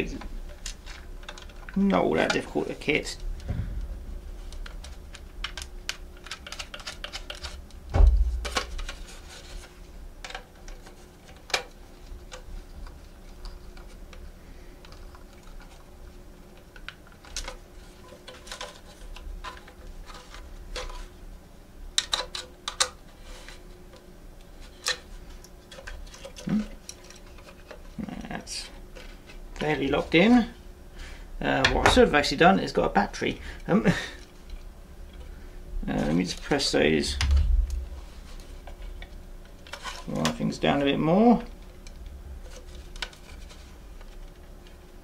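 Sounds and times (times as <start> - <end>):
dull thump: 3.4 - 4.4, 7.9 - 8.6.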